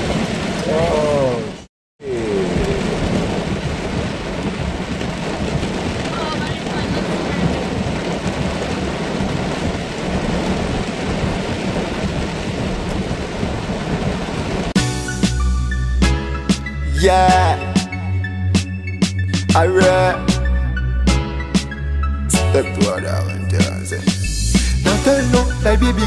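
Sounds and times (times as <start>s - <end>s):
heavy rain on car roof: 0.0s - 14.8s.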